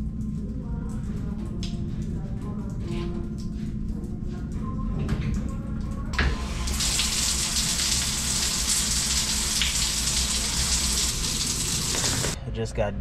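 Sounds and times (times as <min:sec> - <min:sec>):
shower head spraying water: 0:06.2 - 0:12.4.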